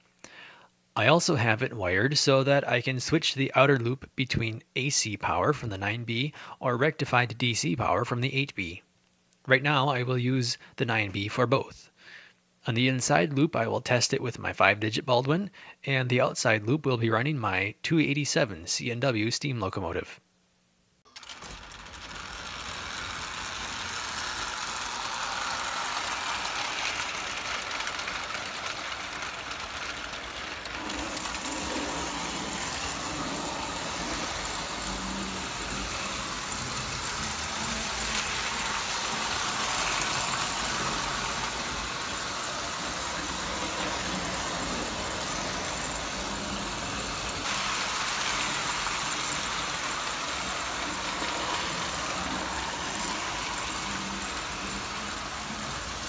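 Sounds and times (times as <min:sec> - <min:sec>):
model train motors whirring: 0:21.1 - 0:56.0
model train wheels on rails: 0:21.1 - 0:56.0.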